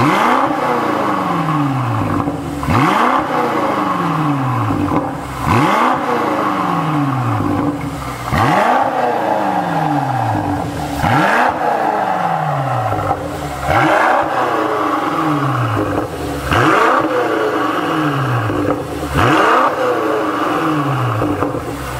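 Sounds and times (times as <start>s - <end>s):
car engine revving: 0.0s - 21.9s.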